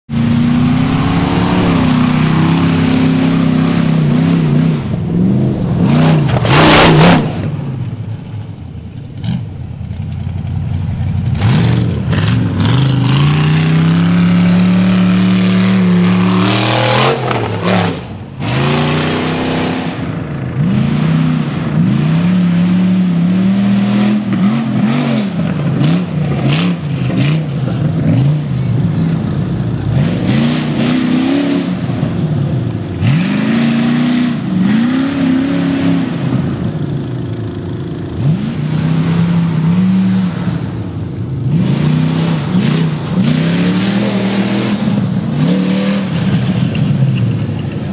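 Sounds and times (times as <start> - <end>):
engine revving hard: 0.1 - 7.6, 11.4 - 28.7, 29.8 - 32.2, 33.0 - 36.2.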